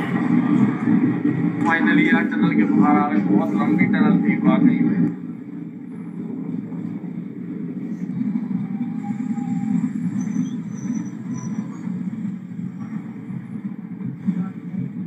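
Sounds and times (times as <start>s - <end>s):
train rumbling on rails: 0.0s - 15.0s
faint high-pitched squeals: 7.8s - 13.2s.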